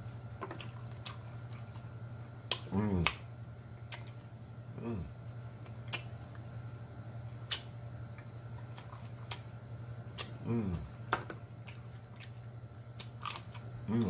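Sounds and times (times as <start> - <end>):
low steady hum: 0.0 - 14.0
wet lip smacks and chewing: 0.4 - 3.2, 3.8 - 4.3, 5.6 - 6.5, 7.4 - 9.5, 10.1 - 10.4, 11.6 - 13.7
person humming mmm: 4.7 - 5.2, 10.2 - 10.9.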